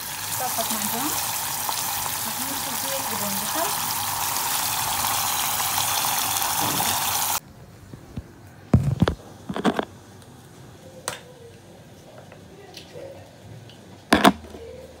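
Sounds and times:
sauce sizzling in a pan: 0.0s - 7.4s.

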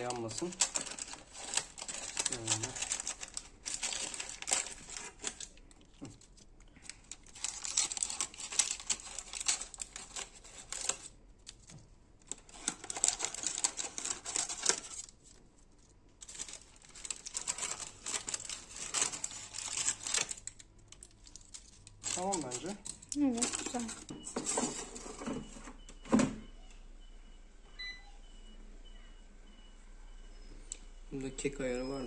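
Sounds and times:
scissors cutting paper: 0.0s - 5.6s, 7.0s - 11.1s
parchment paper crinkling: 0.0s - 25.0s.

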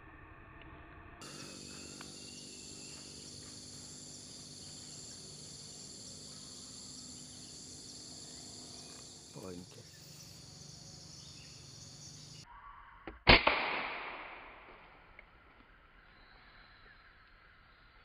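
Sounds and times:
background hiss: 1.2s - 12.4s
insects chorus: 1.2s - 12.4s, 15.7s - 18.0s.

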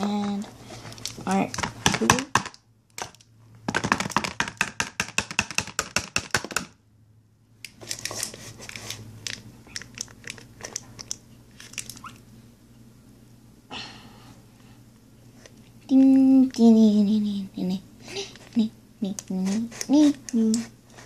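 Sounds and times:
plastic crinkling and crackling: 0.0s - 4.4s, 7.8s - 12.2s.

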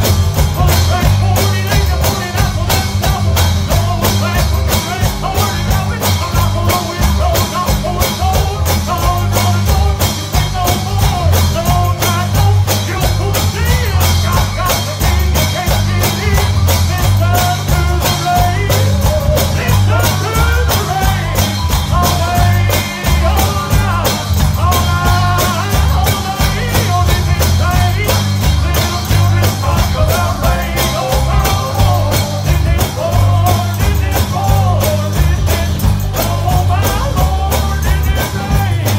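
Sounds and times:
heavy bass line: 0.0s - 38.9s
person singing: 0.0s - 38.9s
tambourine beat: 0.0s - 38.9s.

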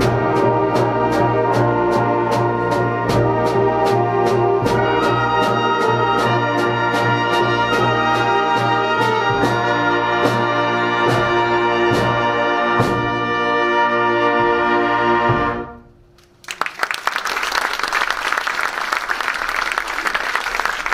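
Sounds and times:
steady percussion beat: 0.0s - 13.4s
brass chord: 0.0s - 16.0s
audience applause: 16.2s - 20.9s.

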